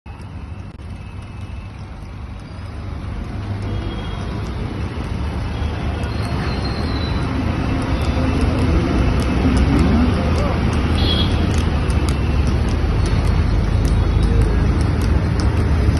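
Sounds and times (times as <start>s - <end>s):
road and traffic noise: 0.0s - 15.9s
vehicle engine rumble: 0.1s - 15.9s.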